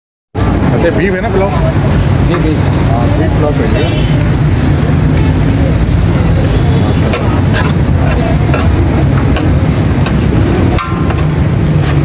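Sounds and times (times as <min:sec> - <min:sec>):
low rumble of traffic: 0:00.3 - 0:12.0
metal spoon scraping pot: 0:07.0 - 0:12.0.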